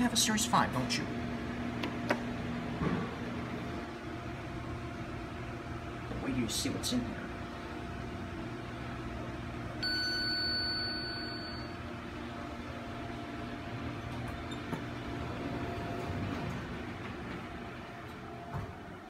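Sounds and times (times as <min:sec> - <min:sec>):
steady low hum: 0:00.0 - 0:19.0
elevator arrival chime: 0:09.8 - 0:11.8
elevator doors opening: 0:13.9 - 0:19.0.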